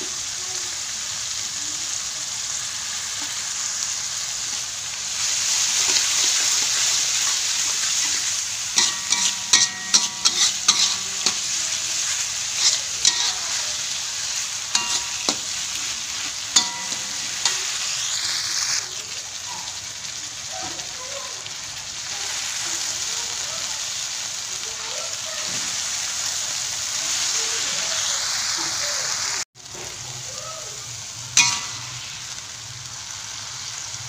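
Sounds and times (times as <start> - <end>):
vegetables sizzling in wok: 0.0 - 34.0
metal spatula scraping wok: 5.3 - 18.8, 31.4 - 32.4.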